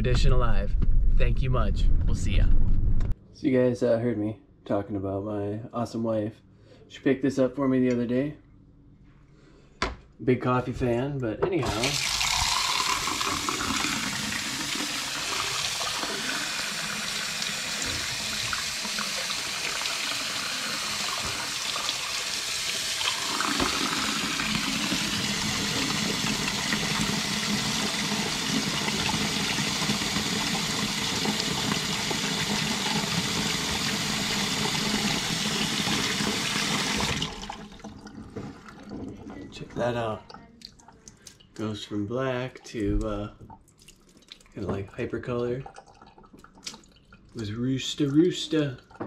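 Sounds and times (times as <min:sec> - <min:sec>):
faucet water splashing into mug: 0:11.6 - 0:38.9.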